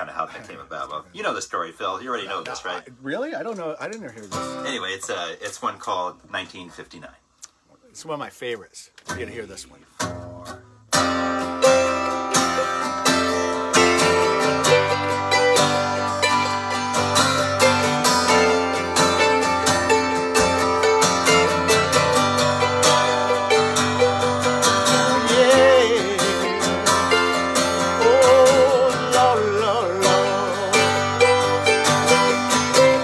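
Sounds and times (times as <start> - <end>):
mandolin picking: 3.5 - 6.0, 9.1 - 33.0
acoustic guitar strumming: 4.2 - 5.7, 9.0 - 33.0.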